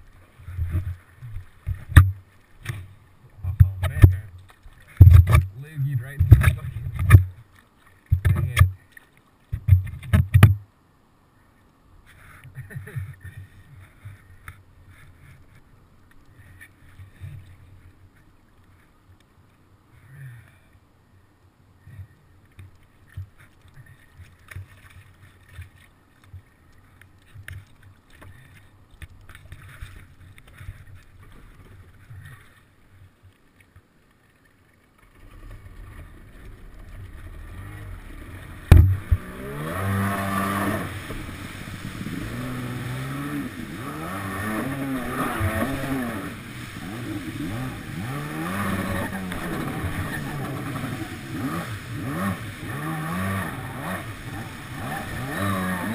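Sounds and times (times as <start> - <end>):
jet ski engine idling and revving: 36.6 - 55.9.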